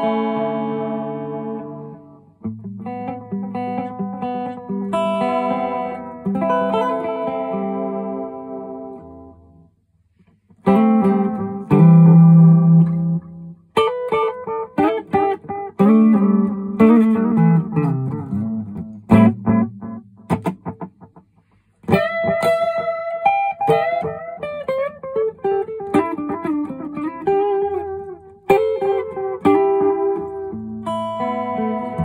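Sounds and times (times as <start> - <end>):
electric guitar with delay: 10.7 - 32.0.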